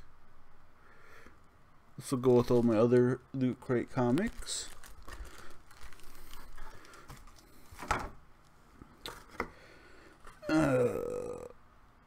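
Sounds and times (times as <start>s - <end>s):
paper and cardboard rustling: 3.8s - 8.2s.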